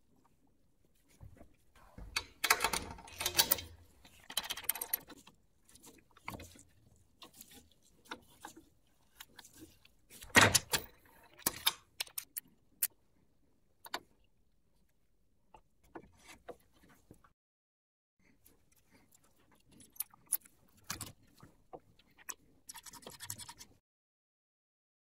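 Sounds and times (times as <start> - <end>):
metal parts clinking and scraping: 2.4 - 5.1.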